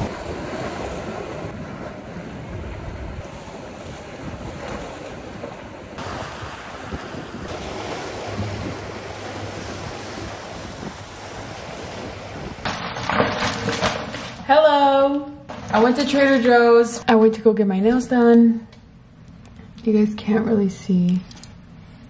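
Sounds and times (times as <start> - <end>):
wind rumbling on microphone: 0.0 - 14.4
waves breaking against rocks: 0.0 - 14.6.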